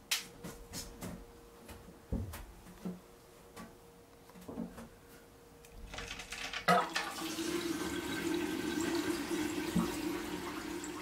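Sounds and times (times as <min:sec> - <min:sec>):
water running: 0:06.6 - 0:11.0.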